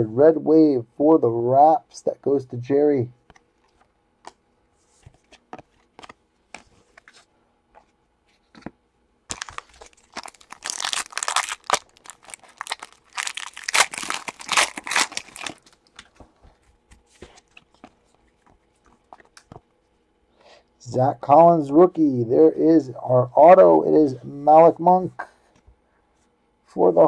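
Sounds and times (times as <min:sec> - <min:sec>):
foil wrapper crinkling: 0:09.3 - 0:16.2.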